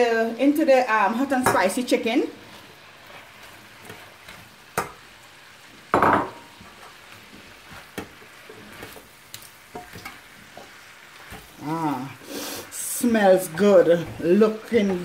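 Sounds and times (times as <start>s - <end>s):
faint sizzle: 0.0s - 15.0s
metal utensil scraping a pan: 9.7s - 11.5s.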